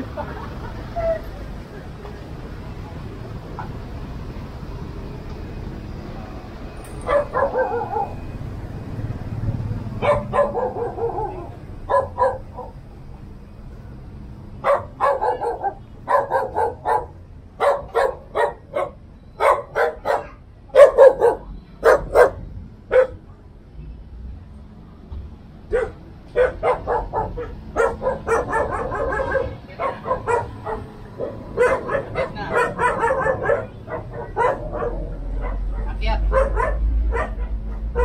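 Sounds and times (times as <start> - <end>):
dog barking: 7.0 - 8.3, 10.0 - 12.8, 14.6 - 23.2, 25.7 - 38.0.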